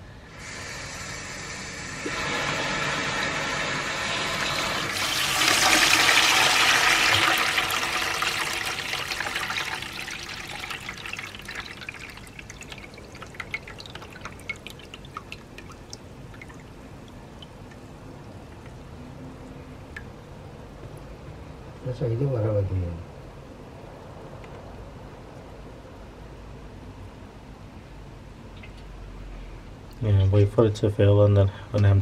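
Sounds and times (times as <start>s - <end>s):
water gushing into bucket: 2.0s - 17.7s
water churning with pops and drips: 4.8s - 21.1s.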